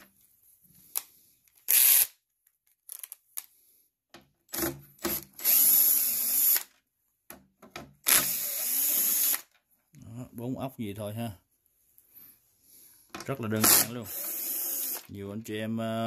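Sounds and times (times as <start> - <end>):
cordless drill spinning: 1.7 - 2.1, 4.6 - 6.7, 8.0 - 9.5, 13.6 - 15.1.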